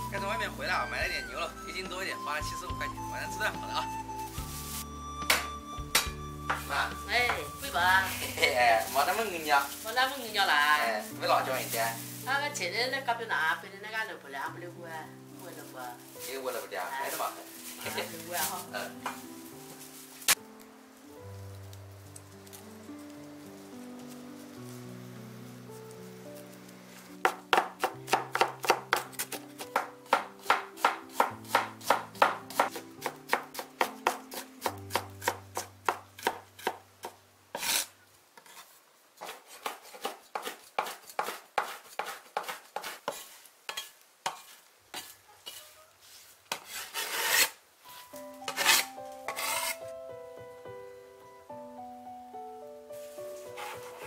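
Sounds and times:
soft background music: 0:00.0 - 0:37.8, 0:47.8 - 0:54.0
cleaver chopping on wooden board: 0:05.3 - 0:06.7, 0:27.2 - 0:37.7, 0:39.2 - 0:42.9.

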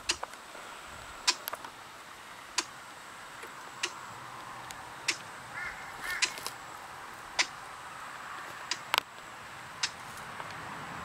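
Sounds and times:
footsteps on twigs and stones: 0:05.6 - 0:07.3, 0:10.0 - 0:10.6.

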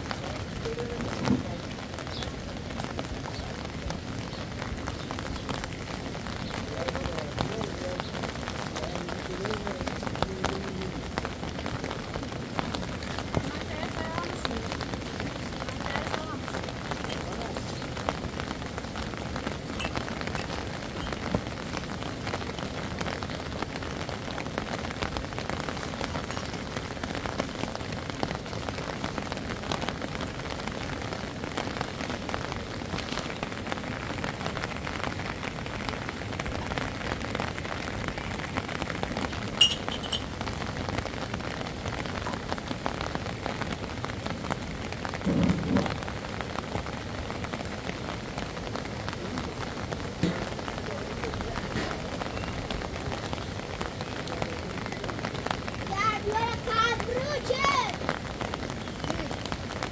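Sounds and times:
rain pattering on ground and roof: 0:00.0 - 0:59.9
brief low thump: 0:45.2 - 0:45.9.

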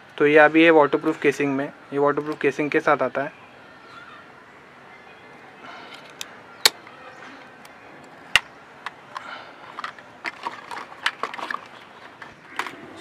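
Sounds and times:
plastic clicks and snaps: 0:05.9 - 0:06.9.

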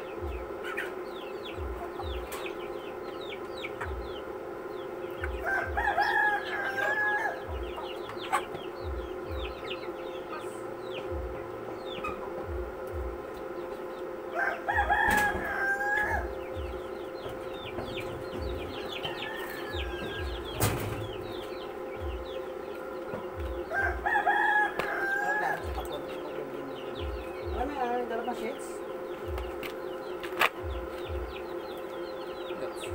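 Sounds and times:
rooster crowing: 0:05.2 - 0:10.0, 0:14.2 - 0:26.0.

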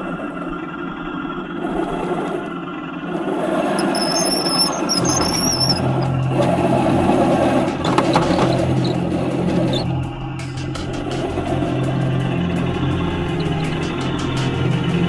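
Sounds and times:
low steady drone: 0:00.0 - 0:15.0
track clatter: 0:03.7 - 0:15.0
toy tank motor and gearbox: 0:03.8 - 0:06.1.

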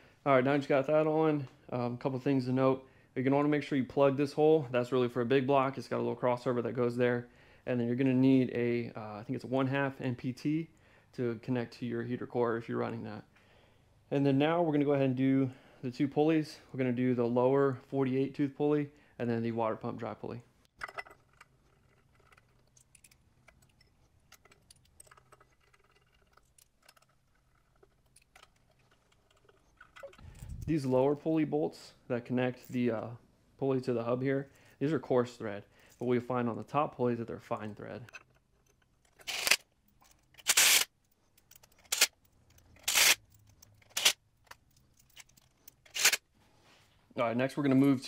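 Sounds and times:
small metallic clicks of bolts: 0:20.8 - 0:30.5, 0:38.1 - 0:46.2
socket ratchet clicking: 0:40.3 - 0:46.2.

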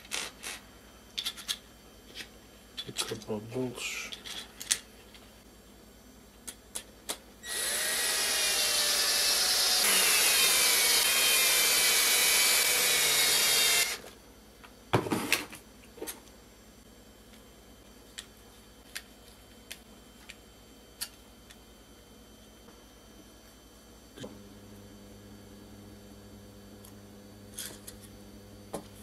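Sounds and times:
cordless drill driving bolt: 0:07.5 - 0:14.0.

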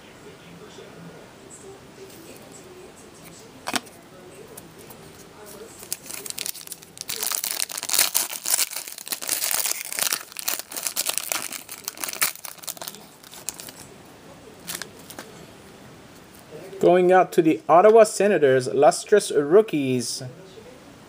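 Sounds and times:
foil wrapper crinkling: 0:05.4 - 0:13.9, 0:14.6 - 0:15.3.

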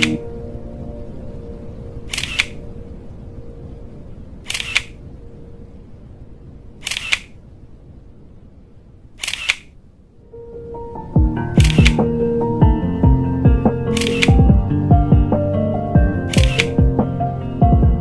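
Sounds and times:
faint low hum: 0:00.0 - 0:18.0
camera shutter clicks: 0:02.1 - 0:02.6, 0:04.5 - 0:05.0, 0:06.8 - 0:07.4, 0:09.2 - 0:09.7, 0:11.6 - 0:12.0, 0:13.9 - 0:14.3, 0:16.3 - 0:16.7.

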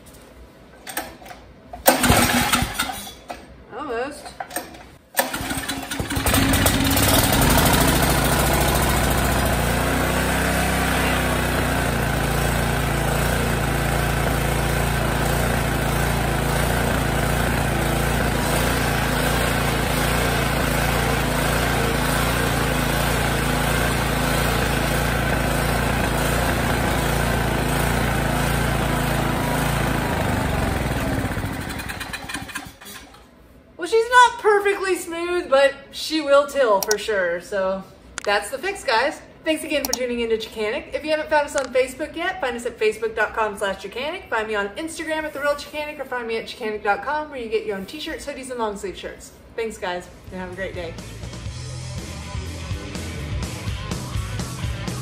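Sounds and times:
small engine running: 0:05.3 - 0:32.8.

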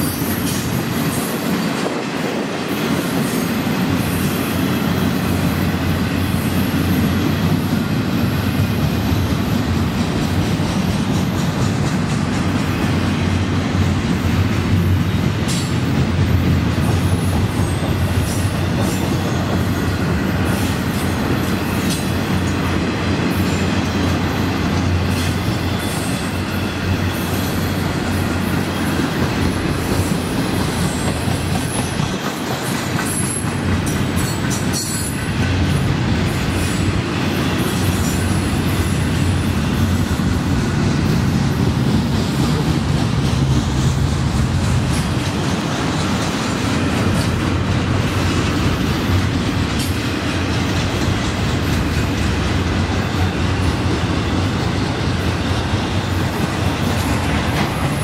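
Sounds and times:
train wheels rumbling on rail: 0:00.0 - 0:58.0
rail clicking: 0:00.4 - 0:58.0
high wheel squeal: 0:23.4 - 0:35.5.

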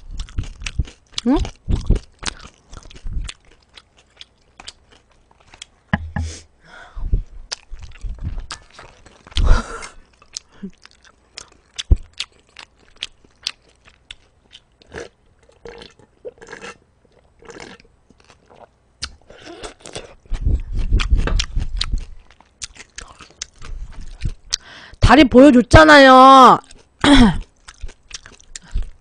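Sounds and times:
chewing with mouth clicks: 0:00.0 - 0:05.8, 0:07.5 - 0:24.7, 0:26.6 - 0:29.0.

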